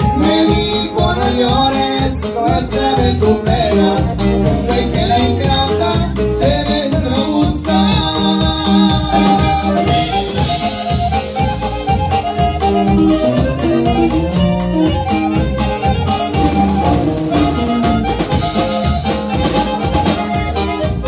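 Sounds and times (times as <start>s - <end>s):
saxophone: 0.0s - 1.5s, 7.8s - 21.0s
button accordion: 0.0s - 21.0s
live band playing: 0.0s - 21.0s.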